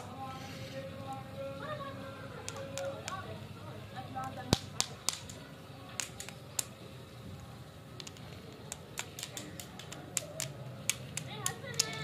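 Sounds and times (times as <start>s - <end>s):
lollipops clicking and tapping: 2.4s - 3.3s, 4.2s - 6.8s, 8.0s - 12.0s.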